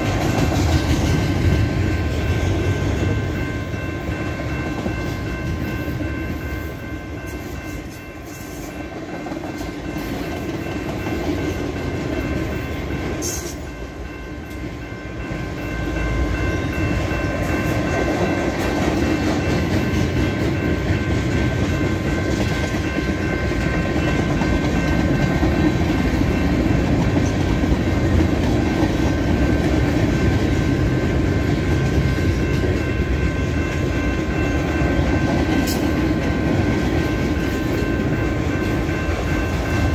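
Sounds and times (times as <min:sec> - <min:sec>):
freight train wheels on track: 0:00.0 - 0:39.9.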